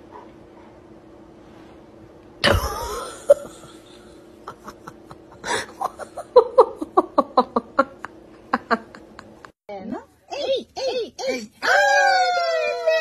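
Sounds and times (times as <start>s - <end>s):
person laughing: 2.4s - 9.5s.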